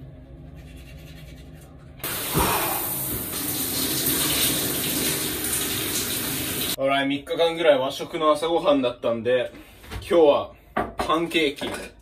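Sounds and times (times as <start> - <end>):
shower water spraying: 2.0 - 6.8.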